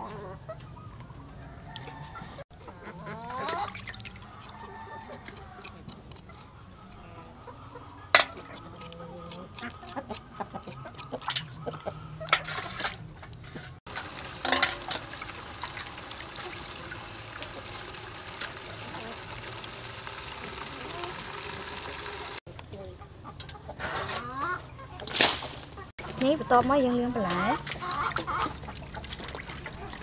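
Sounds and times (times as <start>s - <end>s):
water splashing in metal basin: 3.4s - 4.3s, 13.9s - 22.4s, 27.6s - 30.0s.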